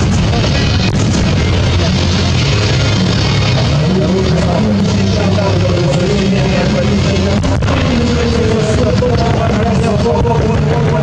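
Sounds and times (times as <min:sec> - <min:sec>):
rock music: 0:00.0 - 0:11.0.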